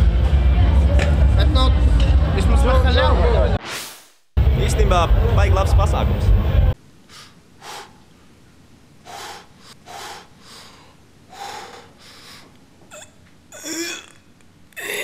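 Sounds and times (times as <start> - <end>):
person breathing in heavy gasps: 9.1 - 12.5.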